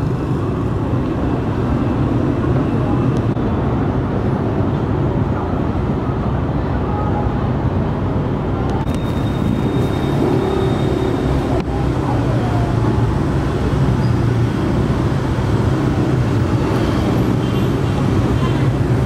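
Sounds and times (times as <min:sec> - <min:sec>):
traffic noise: 0:00.0 - 0:19.0
motorbikes and scooters passing: 0:08.9 - 0:19.0.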